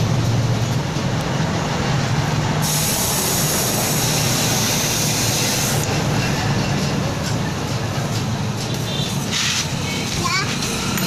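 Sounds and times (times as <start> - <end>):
compressed air hissing: 2.6 - 5.9.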